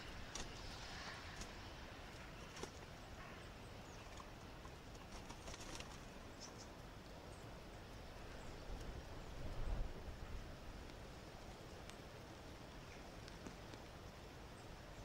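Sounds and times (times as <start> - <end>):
pigeon flapping wings: 0.2 - 1.6, 2.3 - 2.9, 4.9 - 6.1.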